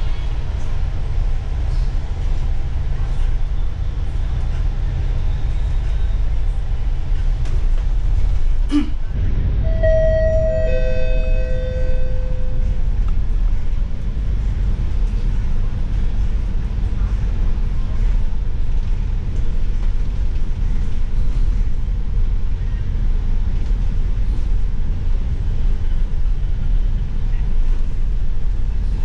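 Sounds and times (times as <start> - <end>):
bus engine and road noise: 0.0 - 29.0
two-note falling chime: 9.7 - 12.8.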